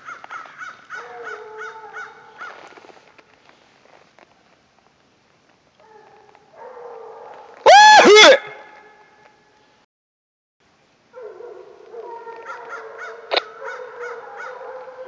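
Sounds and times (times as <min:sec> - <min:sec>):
hounds barking: 0:00.9 - 0:02.6, 0:05.8 - 0:08.9, 0:11.2 - 0:15.0
hounds baying: 0:11.2 - 0:15.0.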